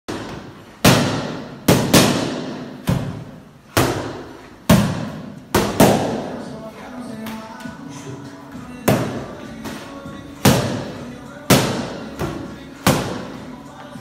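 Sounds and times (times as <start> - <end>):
boxing gloves hitting focus mitts: 0.1 - 6.4, 8.8 - 13.5.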